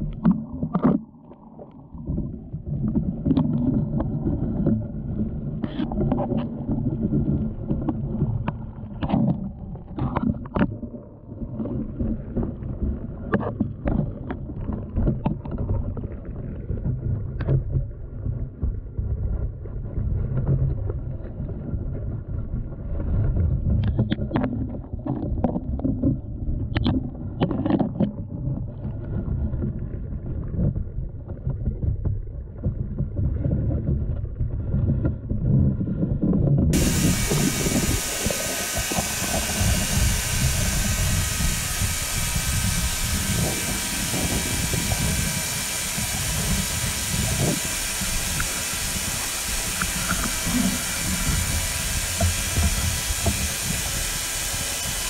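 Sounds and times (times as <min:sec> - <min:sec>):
underwater rumble of moving water: 0:00.0 - 0:41.6
faint steady whine: 0:36.8 - 0:55.0.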